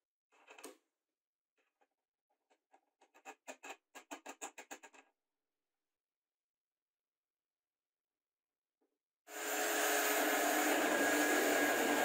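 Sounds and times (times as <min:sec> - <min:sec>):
clicks and scrapes of wood and metal: 0:01.6 - 0:05.1.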